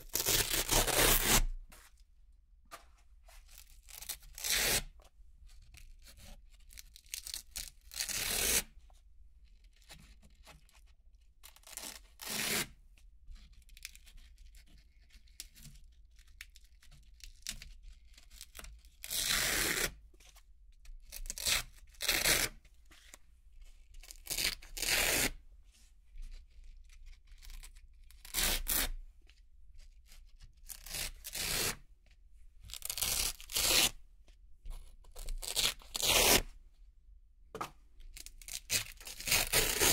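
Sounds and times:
velcro ripping: 0.0 - 1.6, 24.2 - 25.4, 28.2 - 29.0, 32.8 - 34.0, 35.4 - 36.5, 38.4 - 39.9.

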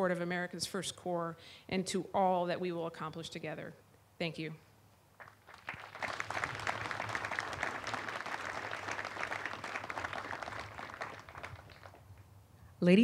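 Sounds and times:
audience applauding: 5.2 - 12.1.

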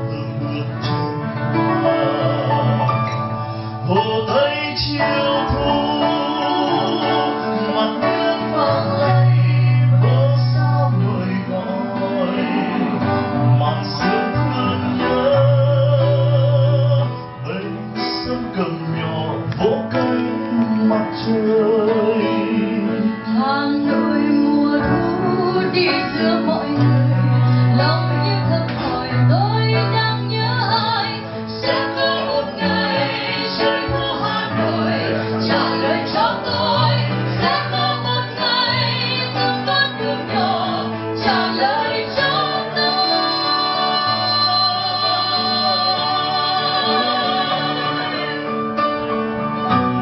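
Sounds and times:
woman and man singing duet: 0.0 - 48.6
acoustic guitar: 0.0 - 50.0.

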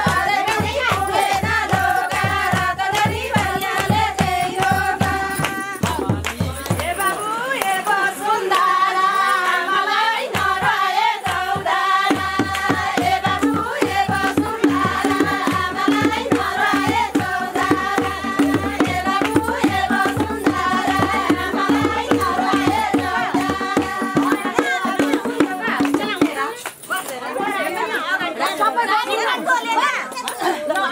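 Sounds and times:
quick steady drum beat: 0.0 - 7.2, 10.4 - 26.6
women singing folk song: 0.0 - 30.9.

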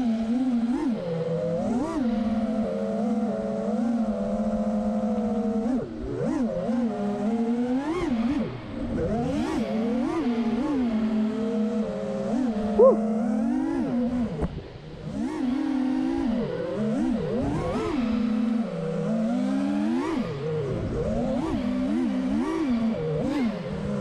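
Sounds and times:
quadcopter motors whining: 10.3 - 15.1.

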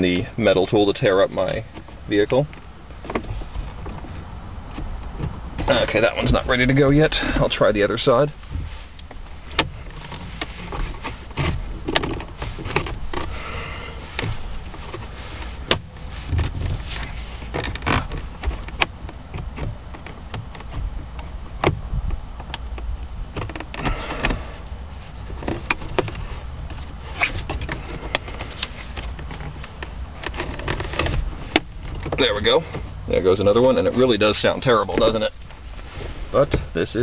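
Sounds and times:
low handling rumble: 0.0 - 37.0
plastic trim creaking and clicking: 9.0 - 13.4, 14.0 - 33.0.

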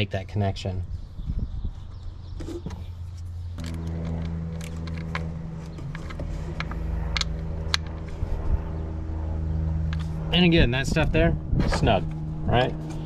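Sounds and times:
vehicle engine humming: 0.8 - 13.0.

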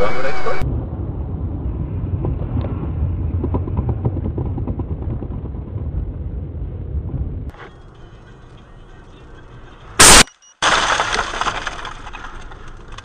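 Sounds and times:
car engine and tyres rumbling: 0.6 - 10.0.

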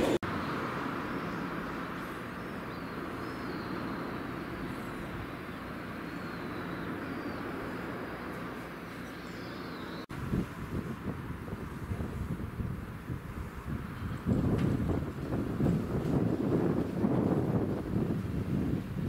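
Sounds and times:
outdoor background noise: 0.0 - 19.0
high bird chirps: 0.3 - 8.0.

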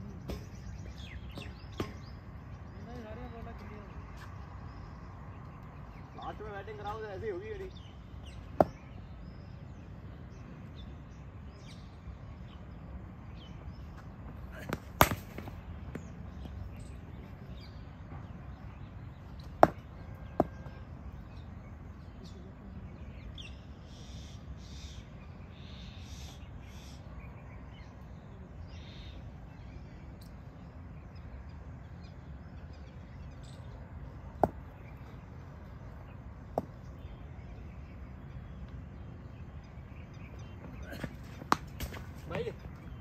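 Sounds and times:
low background noise: 0.0 - 43.0
cricket ball knocks: 14.6 - 16.1, 34.4 - 34.7.

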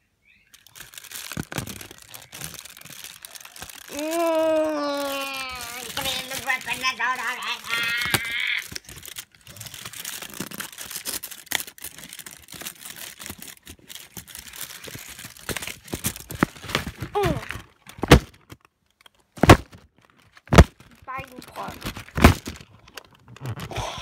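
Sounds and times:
foil and paper wrappers crinkling: 0.5 - 24.0
short falling vocal sound: 3.9 - 5.8.

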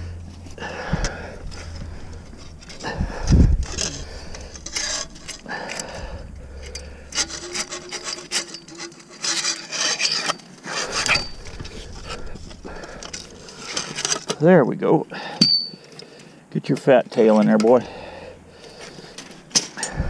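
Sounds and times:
wire cage and metal pole scraping: 0.0 - 14.4.

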